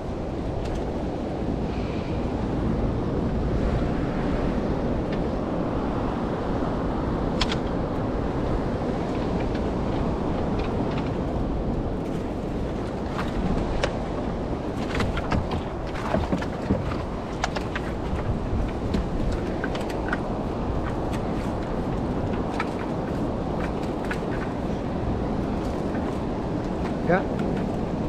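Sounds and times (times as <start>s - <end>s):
wind buffeting microphone: 0.0s - 28.0s.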